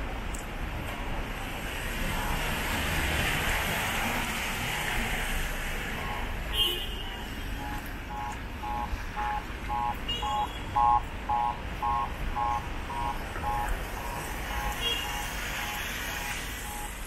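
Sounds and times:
street noise: 0.0 - 17.0
electronic two-tone beeps: 7.6 - 17.0.

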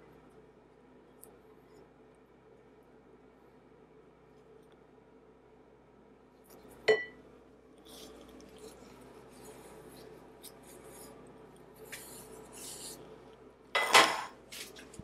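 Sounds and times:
kitchenware clatter: 6.8 - 7.2, 13.8 - 14.4
kitchenware clinking on glass bowl: 6.9 - 7.2, 13.8 - 14.4.

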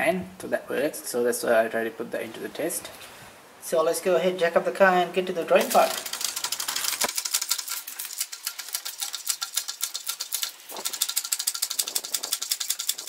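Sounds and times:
fast high-pitched ticking: 5.7 - 13.0.

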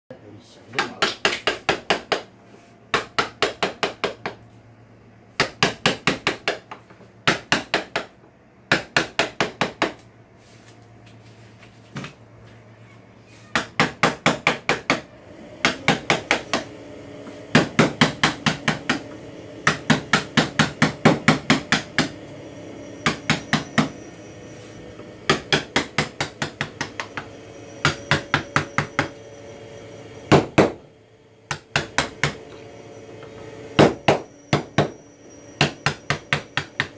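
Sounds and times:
mallet tapping carving gouge: 25.3 - 27.2.

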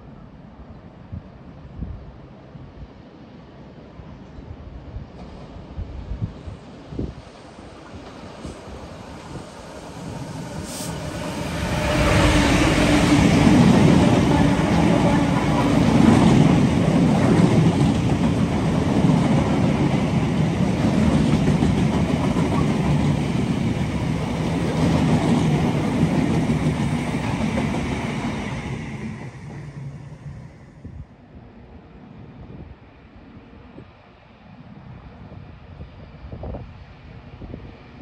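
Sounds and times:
train wagons rumbling over rails: 7.8 - 30.3
locomotive engine passing: 8.9 - 29.8.

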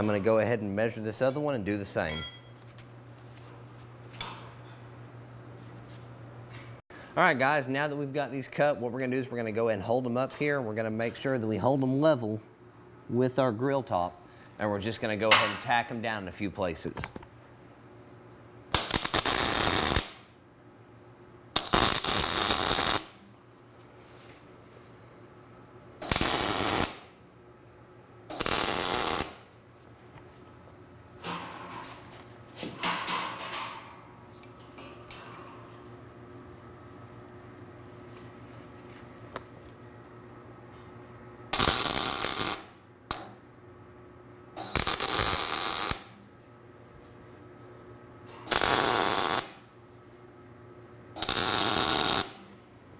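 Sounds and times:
welding arc crackling: 18.7 - 20.3, 21.6 - 23.2, 26.0 - 27.2, 28.3 - 29.5, 41.5 - 43.4, 44.6 - 46.2, 48.5 - 49.7, 51.2 - 52.4.

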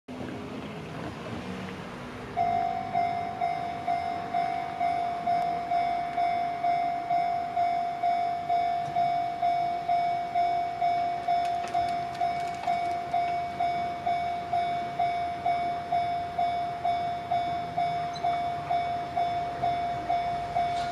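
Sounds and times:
car driving past: 0.1 - 6.2
electronic crossing bell tone: 2.4 - 20.9.

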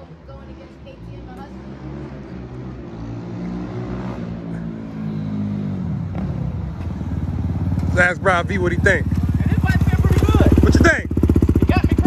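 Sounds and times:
dirt bike engine running: 5.8 - 12.0.

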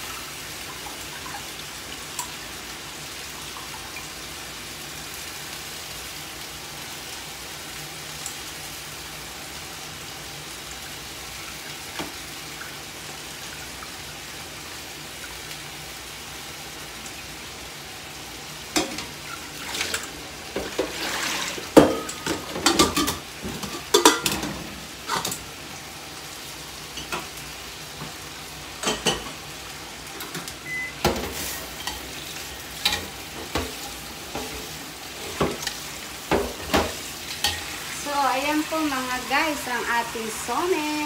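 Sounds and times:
meat sizzling in a pan: 0.0 - 41.0
metal cookware clinking: 21.8 - 24.5, 28.8 - 29.4, 32.8 - 34.5.

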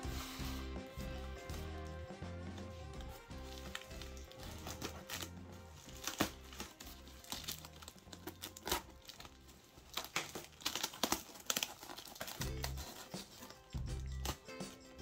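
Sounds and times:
soft background music: 0.0 - 15.0
bubble wrap crinkling: 2.6 - 14.4.

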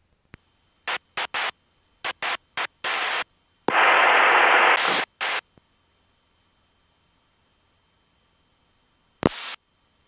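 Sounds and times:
radio static: 0.8 - 5.4, 9.2 - 9.6.

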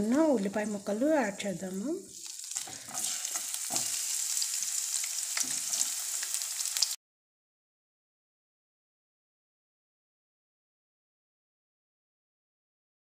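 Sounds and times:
onions sizzling in hot oil: 0.0 - 7.0.

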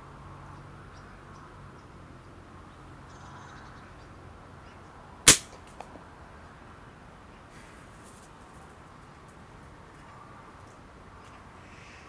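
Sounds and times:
slingshot firing crack: 5.3 - 5.8.

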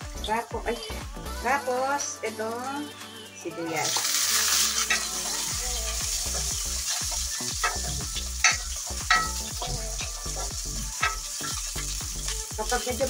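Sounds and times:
onion sizzling in oil: 3.7 - 13.0.

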